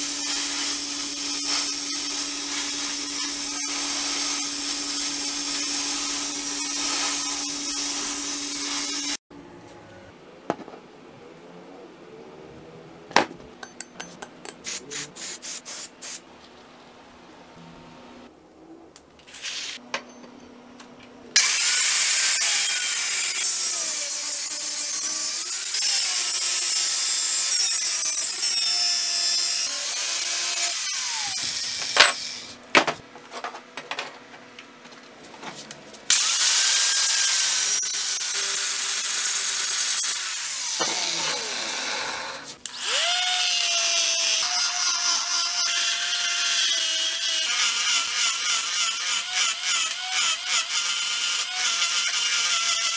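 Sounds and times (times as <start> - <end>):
rotary grinder cutting metal: 0.0 - 9.2, 21.4 - 32.6, 36.1 - 52.9.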